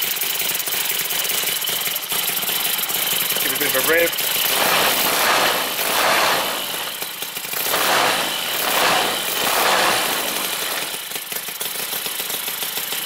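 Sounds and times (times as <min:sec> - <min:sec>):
model engine revving: 0:03.4 - 0:11.1.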